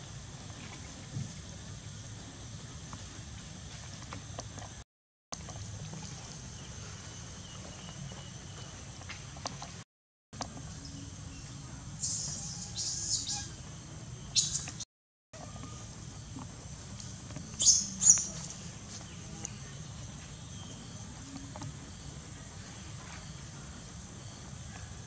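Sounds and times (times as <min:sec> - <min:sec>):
high insect-like hiss: 0:12.0 - 0:13.5
squeaky animal calls: 0:12.0 - 0:13.6.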